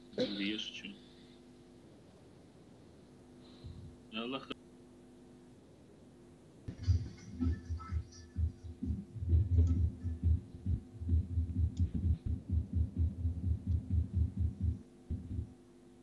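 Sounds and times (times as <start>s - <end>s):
deep electronic bass thumps: 6.7s - 15.5s.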